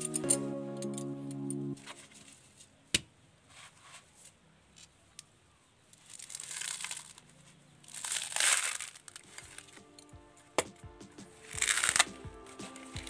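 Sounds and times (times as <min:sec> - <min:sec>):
background music with a beat: 0:00.0 - 0:01.8, 0:09.3 - 0:13.0
coconut husk fibres tearing: 0:05.9 - 0:09.8, 0:11.3 - 0:12.2.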